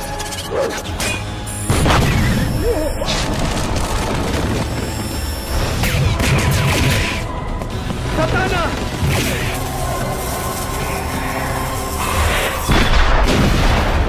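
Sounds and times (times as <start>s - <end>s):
film music score: 0.0s - 14.0s.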